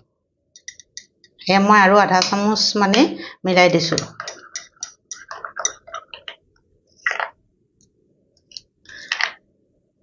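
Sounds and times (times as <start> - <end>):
metal spoon scraping glass bowl: 4.0 - 6.2.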